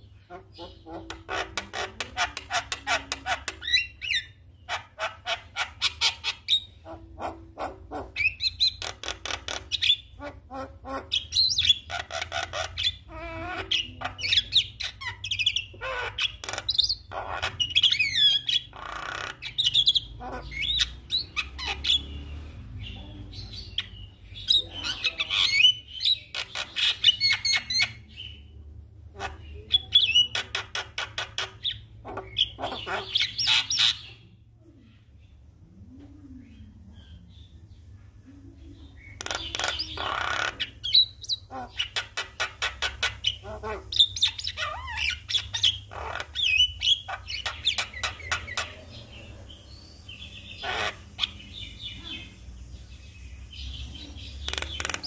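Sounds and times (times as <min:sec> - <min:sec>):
bird singing with clicks and whistles: 0:53.7 - 0:55.0.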